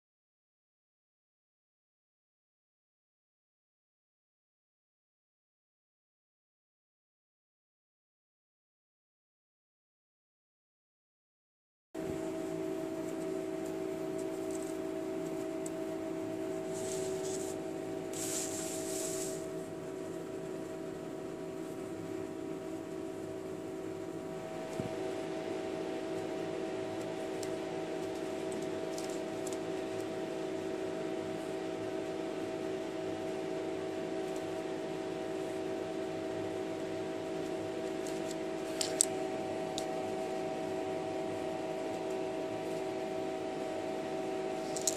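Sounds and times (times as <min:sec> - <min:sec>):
mechanical room hum: 0:12.0 - 0:44.9
soft rustles: 0:16.6 - 0:19.6.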